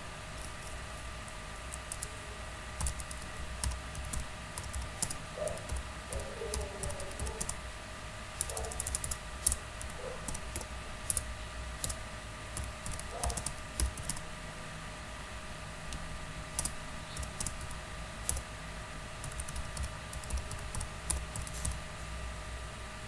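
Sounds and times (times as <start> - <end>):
typing on computer keyboard: 1.7 - 2.1, 2.8 - 7.6, 8.4 - 12.0, 12.6 - 14.2, 15.9 - 18.4, 19.2 - 21.8.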